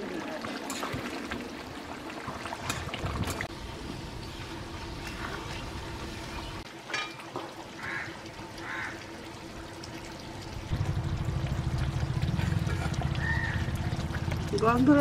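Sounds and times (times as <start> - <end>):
low rumble: 10.4 - 14.9.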